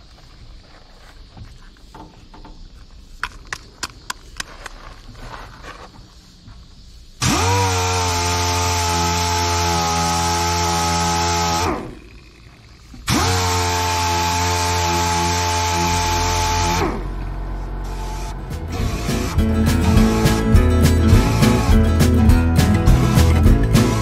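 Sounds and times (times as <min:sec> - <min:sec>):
air-powered orbital sander: 0:07.2 - 0:24.0.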